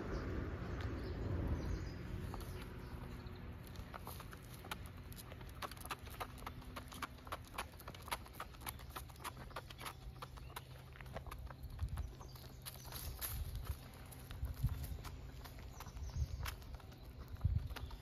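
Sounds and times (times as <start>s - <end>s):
dog boots tapping on asphalt: 2.1s - 18.0s.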